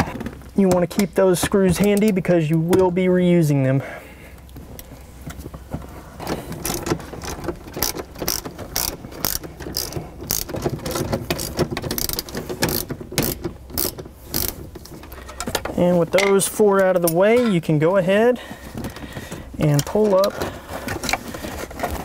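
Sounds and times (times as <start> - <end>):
hand ratchet clicking: 6.6 - 14.6.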